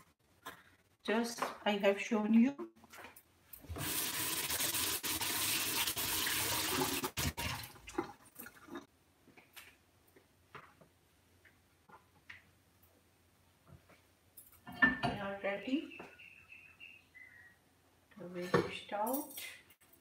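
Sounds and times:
kitchen tap running: 3.7 - 8.8.

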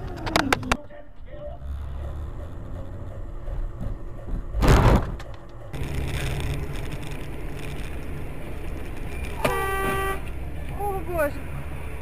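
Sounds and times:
car engine and road noise: 0.0 - 12.0
vehicle collision crash: 4.6 - 5.2.

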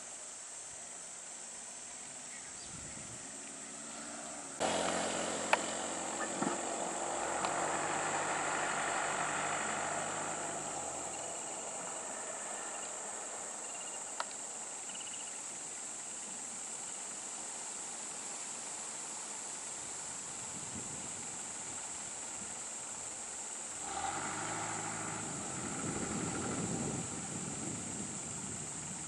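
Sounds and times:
insects shrilling: 1.9 - 15.6, 23.6 - 29.0
lorry engine idling: 4.6 - 14.6, 23.6 - 29.0.

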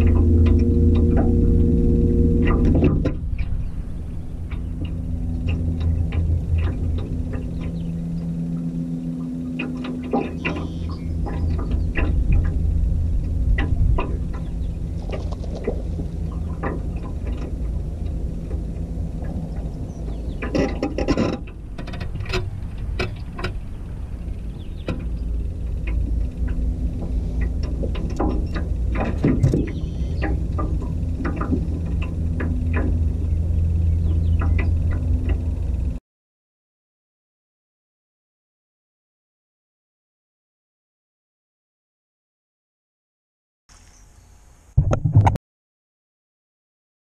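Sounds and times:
steady low hum: 0.0 - 36.0
wind rumbling on microphone: 0.0 - 36.0.

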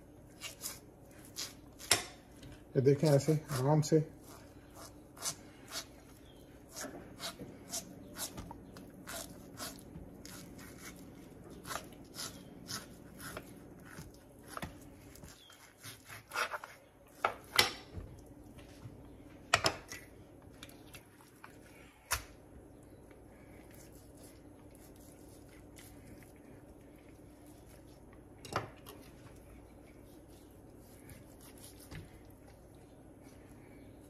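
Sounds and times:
quiet handling of meat: 18.0 - 34.0.

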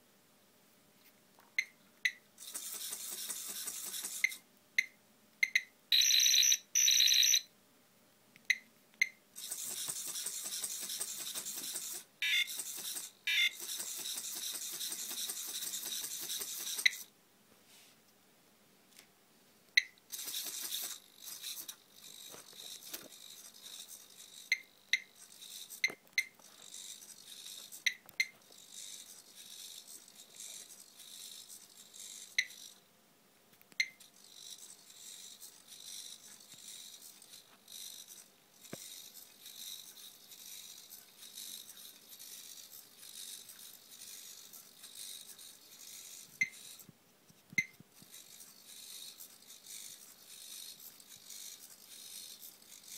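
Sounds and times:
servo motors whirring: 2.4 - 4.4, 9.4 - 17.1, 20.1 - 32.8, 34.1 - 46.9, 48.0 - 52.9.

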